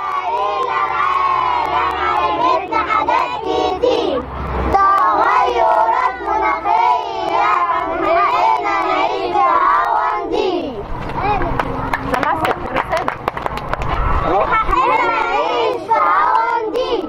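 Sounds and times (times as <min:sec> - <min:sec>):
children singing together: 0:00.0 - 0:10.8, 0:14.8 - 0:17.0.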